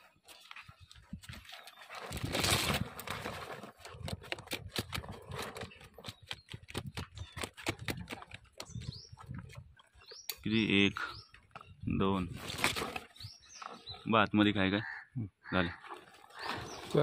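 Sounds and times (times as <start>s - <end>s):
bamboo trap rustling: 1.3s - 8.6s, 12.2s - 13.9s
sharp clicks and knocks: 4.0s - 8.9s.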